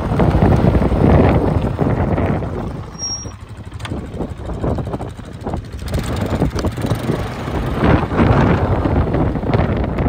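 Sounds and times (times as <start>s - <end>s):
atv engine running: 0.0s - 10.0s
short high chirp: 2.9s - 3.4s.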